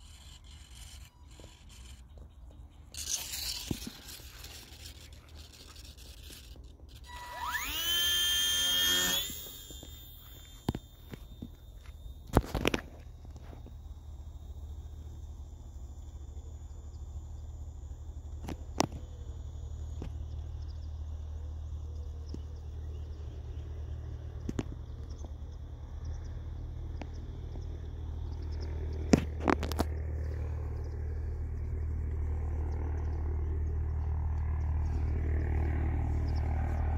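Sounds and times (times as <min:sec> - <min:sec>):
faint high steady tone: 0:07.0 - 0:24.2.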